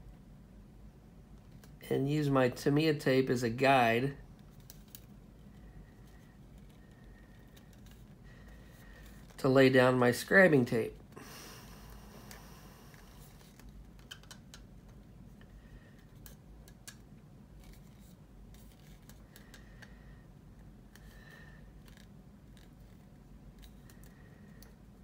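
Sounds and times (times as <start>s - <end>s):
tape clicking and rubbing: 4.4s - 9.4s, 12.2s - 19.9s, 20.6s - 24.8s.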